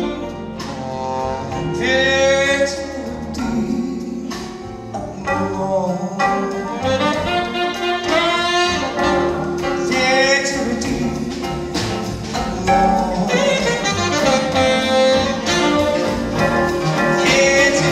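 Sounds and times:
band playing pop ballad: 0.0s - 17.9s
man singing: 1.6s - 7.2s, 8.9s - 15.8s, 16.4s - 17.9s.

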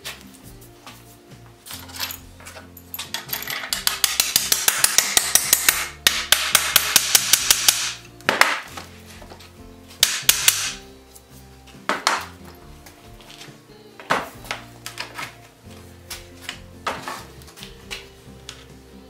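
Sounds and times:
hammer striking iron: 3.7s - 8.7s, 10.0s - 10.8s.

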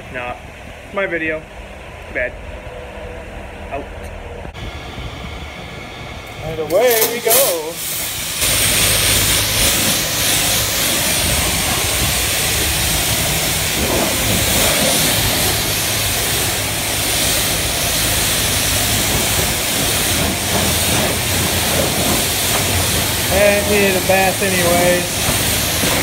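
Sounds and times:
pressure washer spray hissing: 6.7s - 26.0s.

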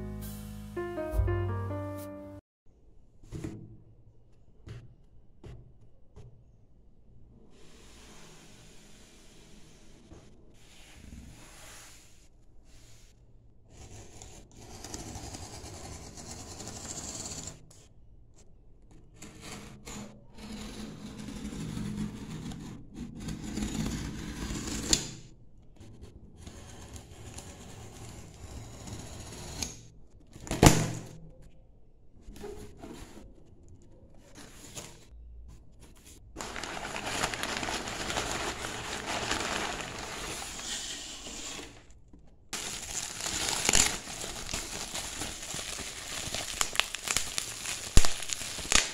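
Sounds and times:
bubble wrap rustling: 36.4s - 40.8s, 42.6s - 48.9s
packing tape pulling: 42.6s - 48.9s.

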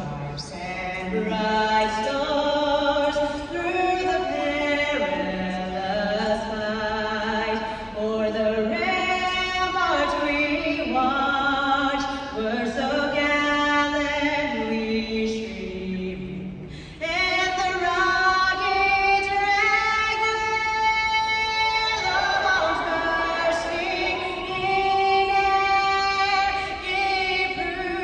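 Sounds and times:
voices singing a cappella: 17.4s - 28.0s.

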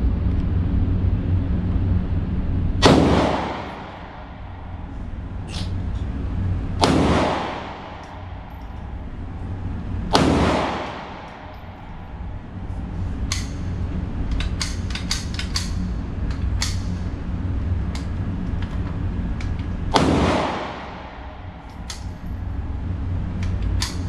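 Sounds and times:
steady low rumble: 0.0s - 24.0s
pistol shots echoing: 2.8s - 4.8s, 6.8s - 9.1s, 10.1s - 12.3s, 19.9s - 22.2s.

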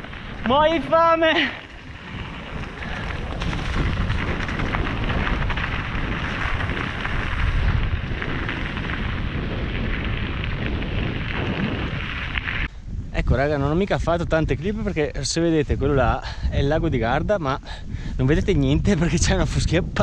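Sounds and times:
bike rattling: 0.0s - 12.7s
tyres crunching on gravel: 0.0s - 12.7s
wind rumble on microphone: 0.0s - 20.0s.

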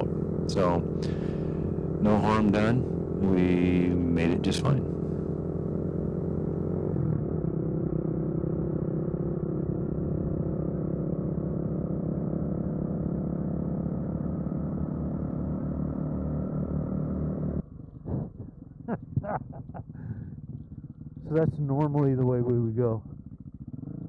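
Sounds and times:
dirt bike engine running: 0.0s - 24.0s.

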